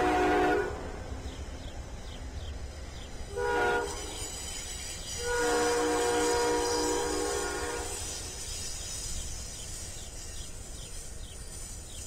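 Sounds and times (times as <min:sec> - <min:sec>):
locomotive air horn blasts: 0:00.0 - 0:00.9, 0:03.3 - 0:04.3, 0:05.2 - 0:08.3
low train rumble: 0:00.0 - 0:12.0.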